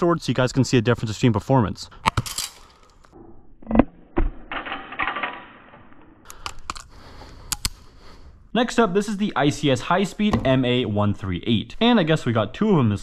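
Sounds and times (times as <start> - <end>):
sharp clicks: 6.2 - 7.9.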